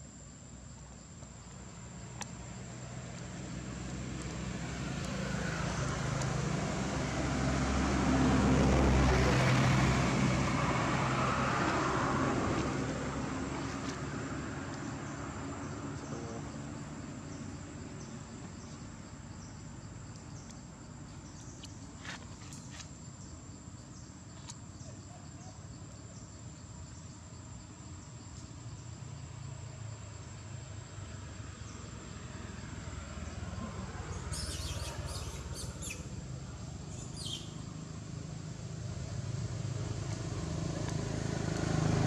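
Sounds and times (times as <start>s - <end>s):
vehicle passing by: 2.5s - 22.8s, 28.0s - 42.0s.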